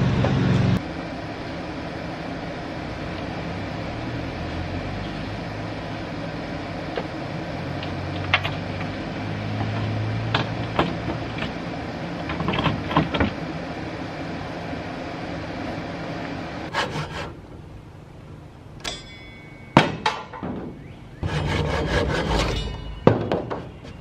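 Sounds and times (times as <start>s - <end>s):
distant engine hum: 0.0s - 24.0s
wooden board clattering: 22.6s - 24.0s.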